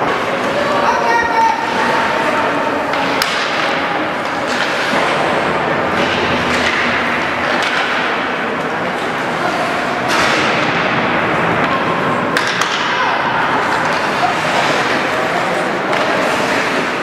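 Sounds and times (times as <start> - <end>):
steady hall noise: 0.0 - 17.0
sharp clicks of sticks or puck: 2.9 - 17.0
skate blades scraping on ice: 13.6 - 17.0.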